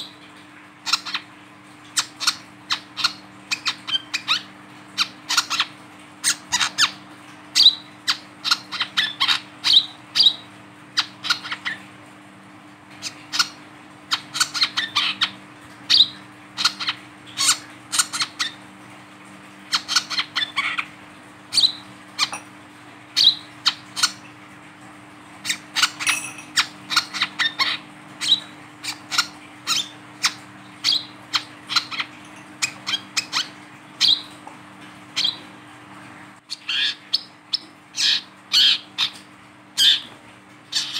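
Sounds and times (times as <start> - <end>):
bird chip notes: 25.8 - 28.4.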